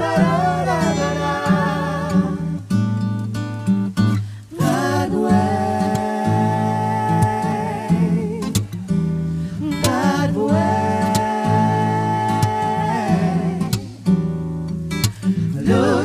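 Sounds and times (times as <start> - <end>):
vocal group singing harmonies: 0.0 - 2.9, 4.2 - 14.4, 15.1 - 16.0
strummed acoustic guitar: 0.0 - 16.0
low vocal bass line: 9.5 - 14.0, 15.5 - 16.0.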